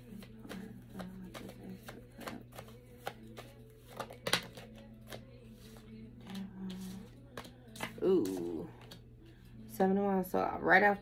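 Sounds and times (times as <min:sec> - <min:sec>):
cards being shuffled: 0:00.0 - 0:09.0
card snap: 0:00.2 - 0:05.2.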